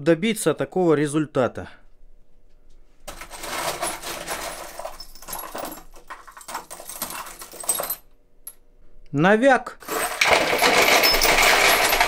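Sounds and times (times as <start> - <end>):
metal nuts and bolts clinking: 3.1 - 8.6, 9.8 - 12.0.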